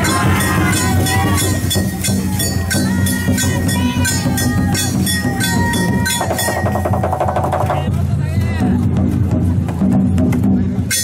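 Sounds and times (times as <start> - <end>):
metal bells struck rhythmically: 0.0 - 7.9, 10.8 - 11.0
voices calling: 0.0 - 7.9.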